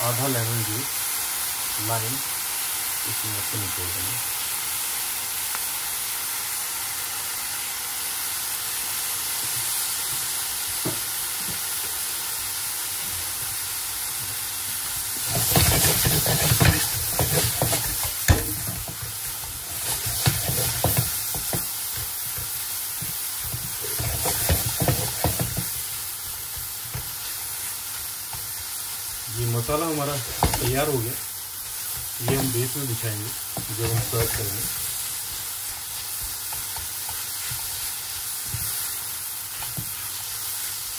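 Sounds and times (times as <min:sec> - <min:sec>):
vegetables sizzling in frying pan: 0:00.0 - 0:40.9
spatula scraping and knocking pan: 0:15.2 - 0:27.4, 0:29.6 - 0:40.1.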